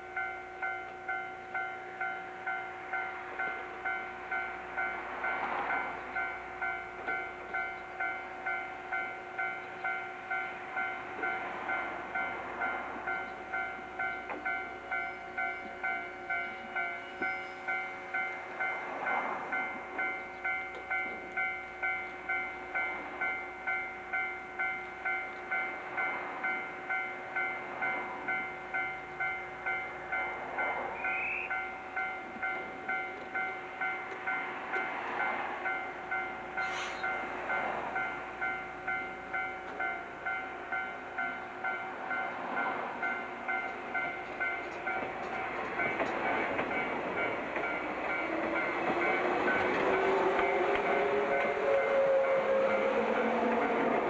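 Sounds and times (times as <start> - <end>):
train noise: 0.0 - 54.0.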